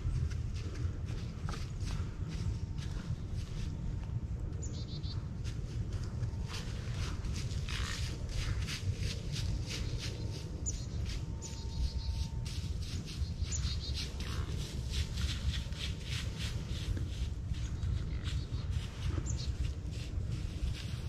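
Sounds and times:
rustling strokes in dry leaves: 0.0 - 21.0
wind rumble on microphone: 0.0 - 21.0
bird chirps: 10.0 - 12.3, 12.9 - 14.5.

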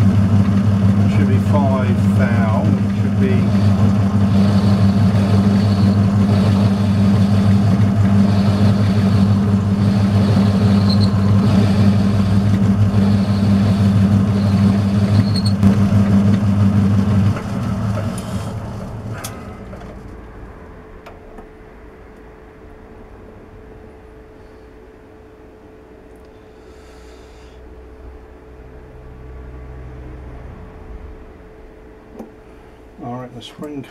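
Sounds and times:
metal lathe running: 0.0 - 20.1.

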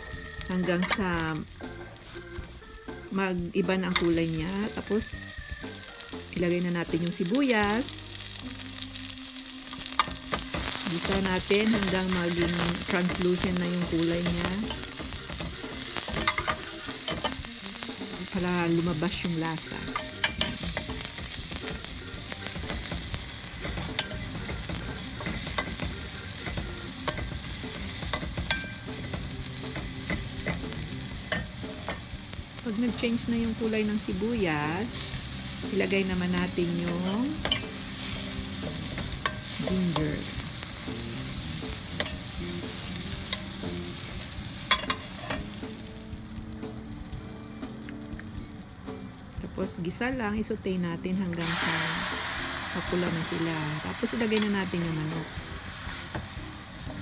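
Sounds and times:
onion sizzling in oil: 0.0 - 57.0
spoon scraping a pan: 0.6 - 1.2, 9.7 - 17.5, 19.0 - 32.1, 36.6 - 40.8, 41.7 - 45.6
spatula stirring and scraping: 9.8 - 18.4.

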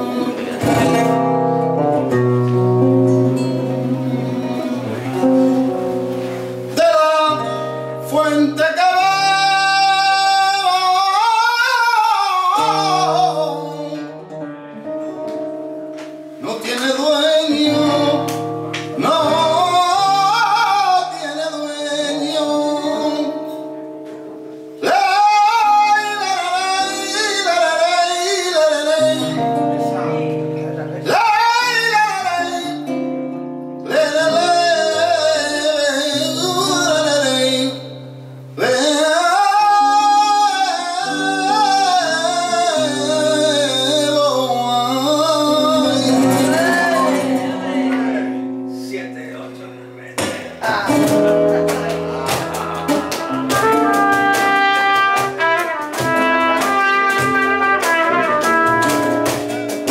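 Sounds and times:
plucked guitars and bass: 0.0 - 11.0, 12.5 - 25.2, 26.6 - 31.8, 41.1 - 59.9
sliding lead melody: 0.0 - 59.9.

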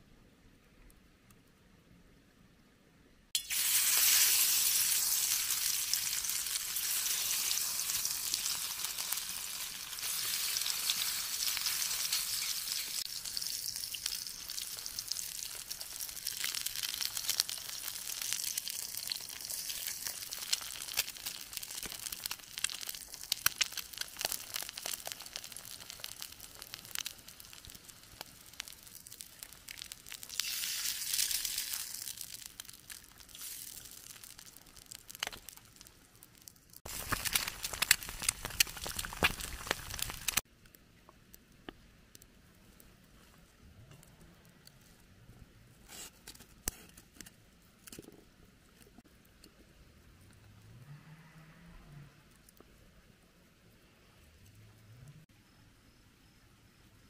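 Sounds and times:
food sizzling in a pan: 3.4 - 35.9, 36.8 - 40.4
oil popping and spitting: 13.0 - 40.4.

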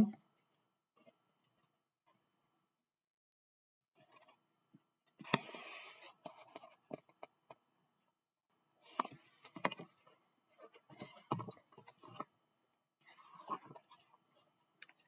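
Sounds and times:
book pages rustling: 5.1 - 7.6, 8.8 - 12.3, 13.0 - 15.0.

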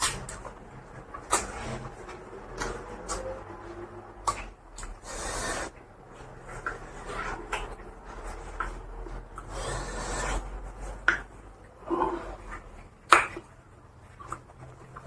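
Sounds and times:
man chewing and mouth smacks: 12.5 - 15.0.

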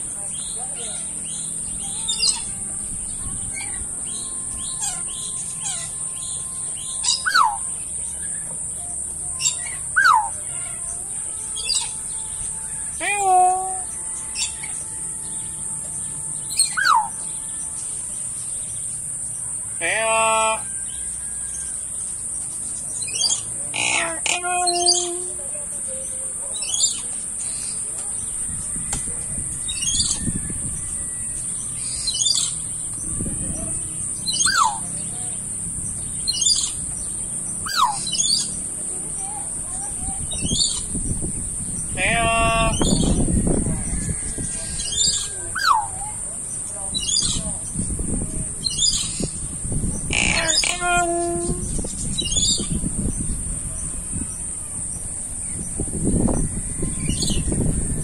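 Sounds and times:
small birds chirping: 0.0 - 58.0
downward-sweeping whistled bird calls: 3.5 - 10.4, 16.0 - 18.8, 28.8 - 35.1, 35.9 - 38.6, 41.7 - 47.8, 48.6 - 53.4, 55.4 - 58.0
small bird chirping: 31.2 - 38.6, 39.2 - 53.4.

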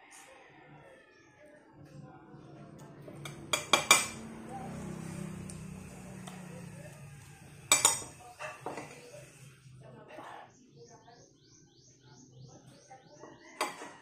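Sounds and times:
spoon clinking on plate: 3.2 - 4.2, 7.7 - 9.0.

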